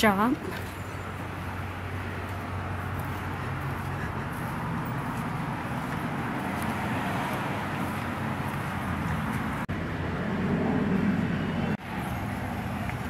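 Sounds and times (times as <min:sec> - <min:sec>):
road noise: 0:00.0 - 0:13.0
vehicle engine humming: 0:00.0 - 0:13.0.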